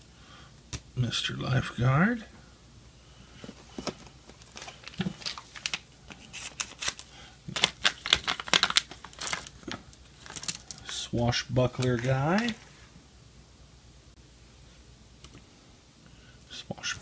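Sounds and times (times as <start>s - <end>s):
foil bag crinkling and tearing: 3.8s - 11.0s, 11.7s - 12.8s.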